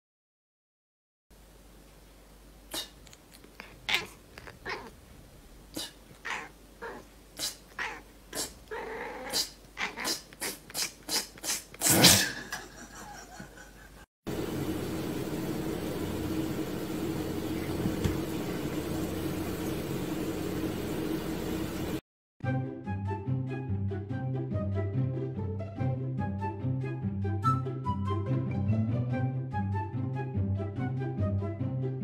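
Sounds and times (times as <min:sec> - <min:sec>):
low hum with hiss: 0:01.4 - 0:11.4, 0:12.4 - 0:22.0
cat making sharp sounds: 0:03.6 - 0:04.9, 0:05.8 - 0:11.8.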